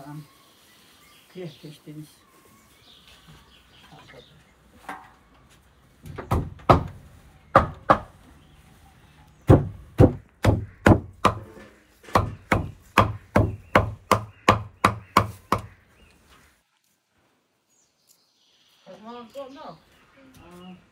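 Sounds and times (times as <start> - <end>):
cleaver chopping herbs on wood: 6.1 - 8.2, 9.4 - 15.8.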